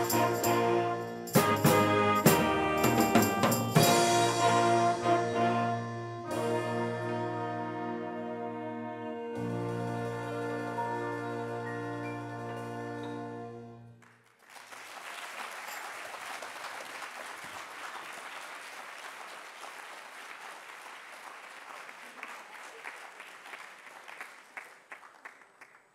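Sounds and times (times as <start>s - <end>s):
jazz band held chord: 0.0s - 13.9s
audience applause: 14.0s - 25.9s.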